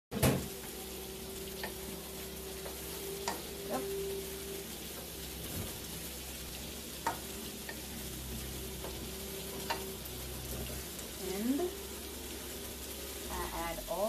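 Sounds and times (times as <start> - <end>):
vegetables sizzling in frying pan: 0.1 - 14.0
spatula tapping pan: 1.6 - 1.9, 2.6 - 3.5, 7.0 - 8.1, 8.8 - 10.0.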